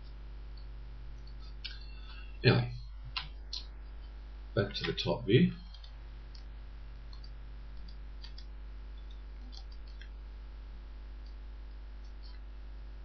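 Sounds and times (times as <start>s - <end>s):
low electrical hum: 0.0s - 13.0s
computer mouse clicks: 5.6s - 6.5s, 7.1s - 10.2s.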